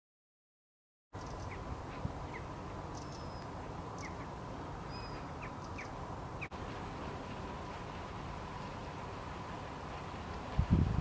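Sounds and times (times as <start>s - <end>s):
small birds chirping: 1.2s - 6.6s
outdoor hiss and low rumble: 1.2s - 11.0s.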